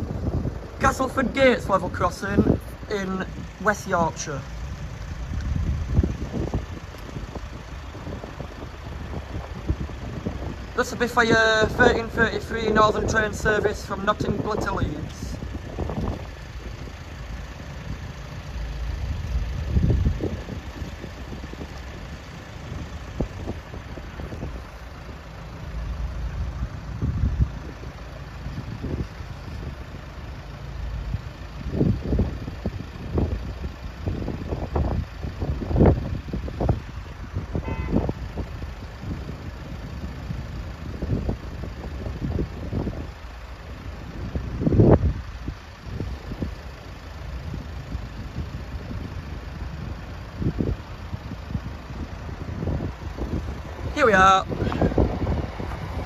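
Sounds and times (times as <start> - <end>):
cars idling: 0.0 - 56.0.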